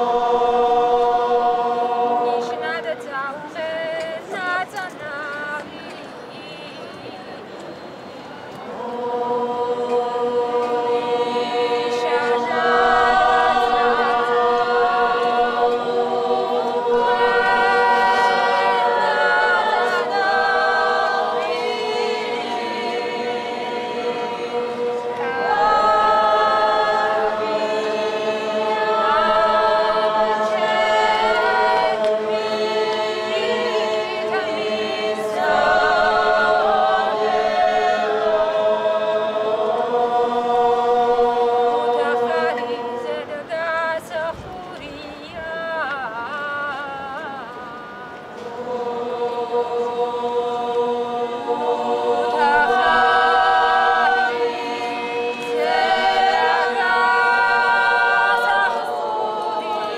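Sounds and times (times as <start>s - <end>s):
group singing a cappella: 0.0s - 59.9s.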